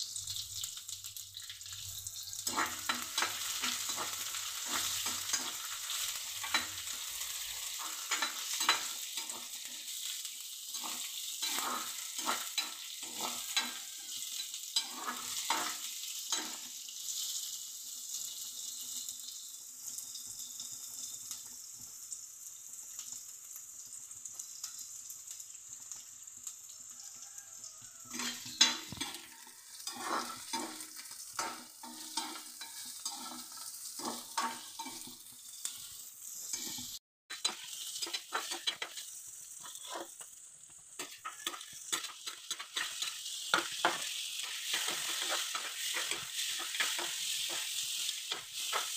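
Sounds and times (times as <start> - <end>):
vegetables sizzling in oil: 0.0 - 48.9
spatula scraping and tapping pan: 2.1 - 16.7, 27.9 - 48.9.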